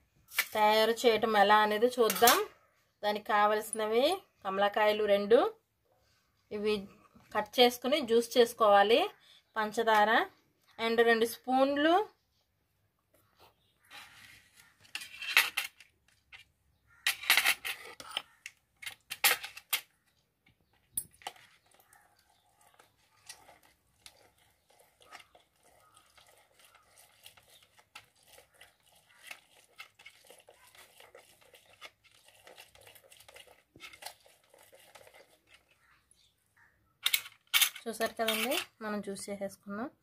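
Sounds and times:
citrus juicer squishing: 0:21.2 - 0:36.3.

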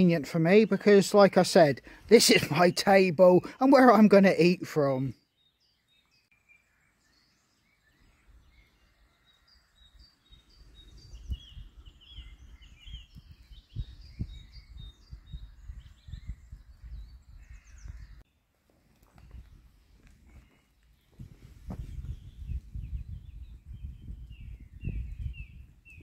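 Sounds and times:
birds singing and chirping: 0:00.0 - 0:18.4, 0:19.0 - 0:26.0
low rumble on microphone: 0:10.4 - 0:18.2, 0:19.1 - 0:26.0.

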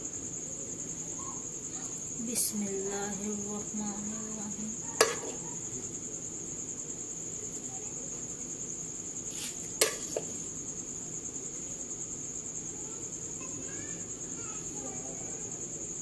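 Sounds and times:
crickets chirring: 0:00.0 - 0:16.0
spoon knocking against metal pot: 0:05.0 - 0:05.4.

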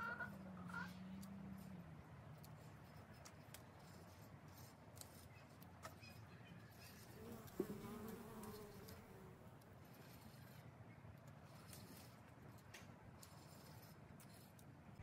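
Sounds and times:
bee buzzing: 0:07.0 - 0:09.4.

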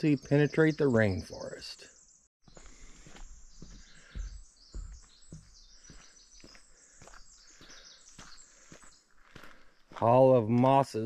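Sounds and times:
small birds chirping: 0:00.0 - 0:11.0
footsteps on a trail: 0:02.4 - 0:11.0.

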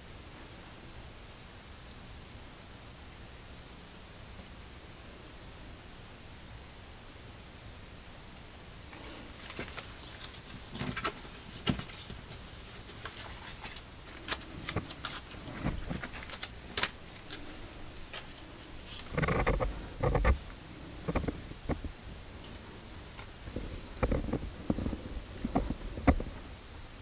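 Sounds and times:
knocks and rubbing: 0:18.8 - 0:21.9.

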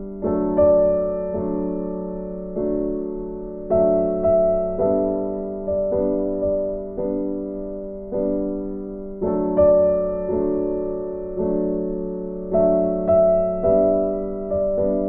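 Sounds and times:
slow piano chords: 0:00.0 - 0:15.0.

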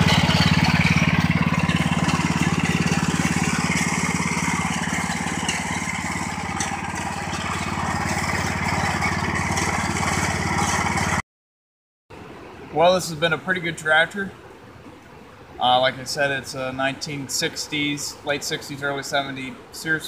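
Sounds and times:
tractor engine running: 0:00.0 - 0:11.2.

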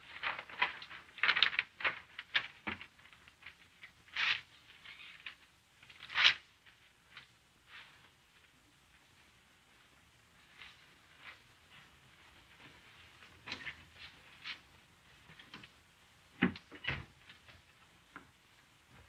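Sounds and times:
paper rustling: 0:00.0 - 0:08.5.

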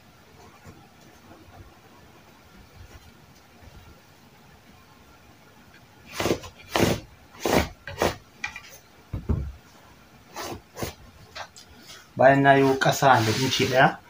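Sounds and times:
chalk scraping on fabric: 0:06.1 - 0:08.2, 0:10.3 - 0:11.0, 0:12.6 - 0:13.9.

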